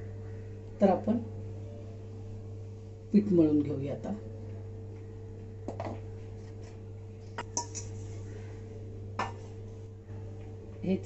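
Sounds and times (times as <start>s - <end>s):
steady low hum: 0.0s - 11.0s
steel kitchenware clinking on plate: 7.4s - 7.9s.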